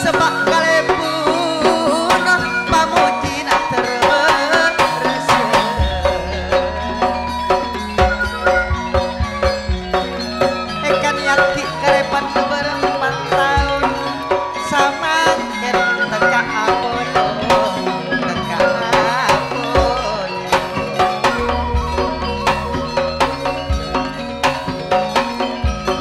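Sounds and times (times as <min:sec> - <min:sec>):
live folk band playing: 0:00.0 - 0:26.0
deep bass note: 0:05.8 - 0:09.9, 0:21.4 - 0:24.4
hand drum strokes: 0:18.8 - 0:26.0.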